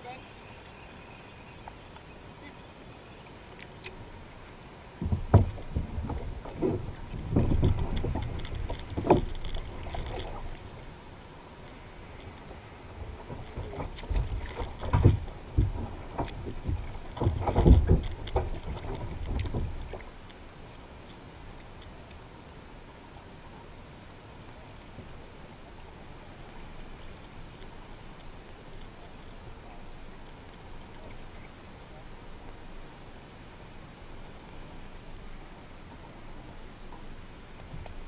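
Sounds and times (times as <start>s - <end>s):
small boat knocking on water: 5.0s - 10.4s, 13.2s - 20.0s.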